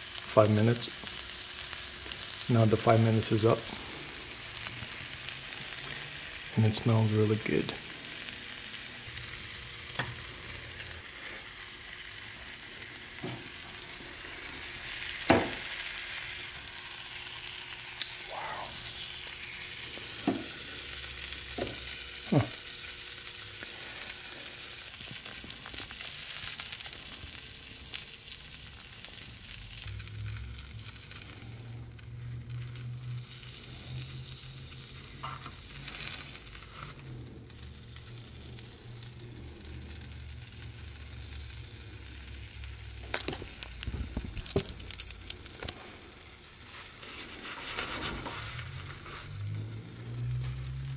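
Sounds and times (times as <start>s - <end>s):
burger sizzling: 0.0s - 50.9s.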